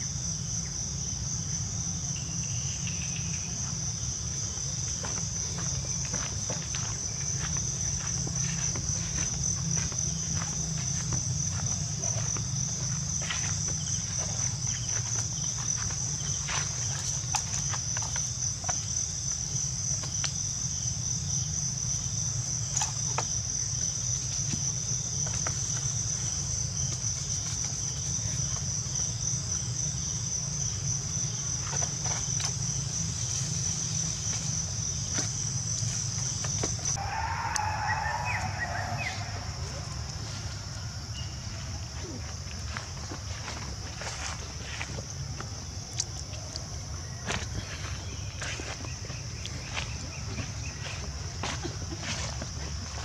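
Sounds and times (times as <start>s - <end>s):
high-pitched insect drone: 0.0s - 26.8s.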